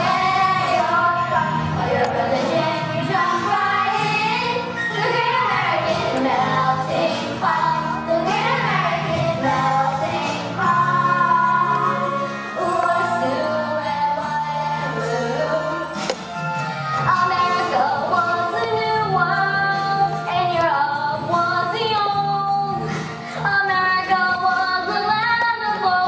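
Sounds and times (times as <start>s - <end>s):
children's chorus singing: 0.0s - 16.1s
instrumental accompaniment: 10.8s - 20.9s.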